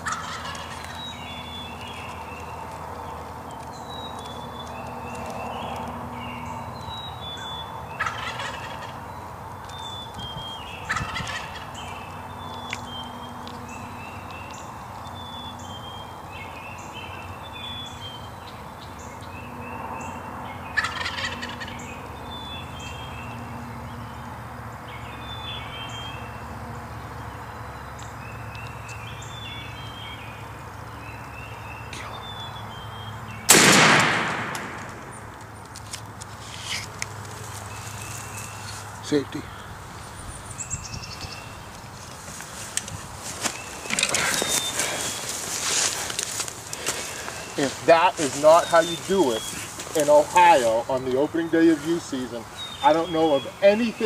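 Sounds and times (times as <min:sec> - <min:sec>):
turkey gobbling: 0:00.0 - 0:01.0, 0:08.0 - 0:09.0, 0:10.8 - 0:11.9, 0:20.7 - 0:21.8.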